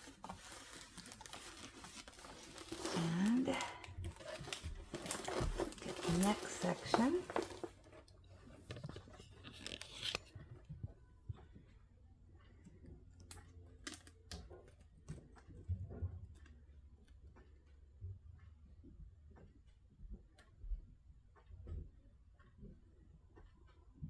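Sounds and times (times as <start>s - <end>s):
plastic cover crinkling: 0.0s - 10.4s.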